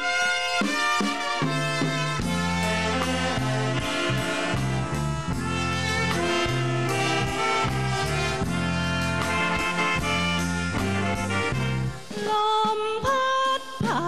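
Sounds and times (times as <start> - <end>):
saxophones and brass melody: 0.0 - 12.4
drums keeping a steady beat: 0.0 - 14.0
bass line: 1.3 - 12.1.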